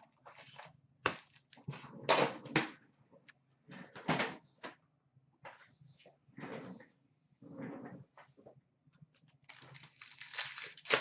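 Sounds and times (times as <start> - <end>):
wrappers rustling: 0.0 - 1.7, 9.2 - 11.0.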